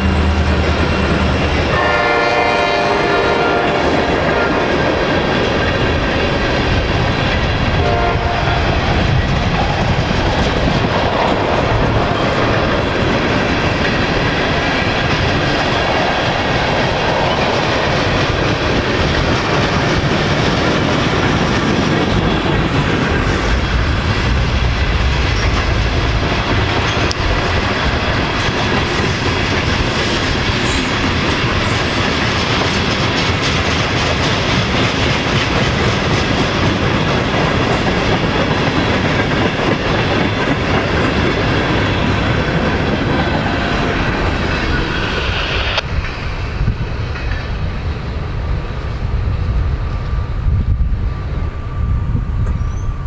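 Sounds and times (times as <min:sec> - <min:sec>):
train wheels clattering over rails: 0:00.0 - 0:47.9
high-pitched wheel squeals: 0:51.8 - 0:53.0.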